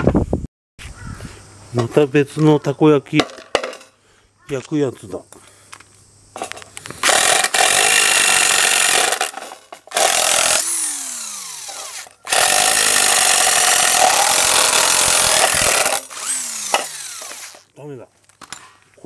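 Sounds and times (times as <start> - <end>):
cordless power driver whining: 7.0 - 9.3, 9.9 - 17.7.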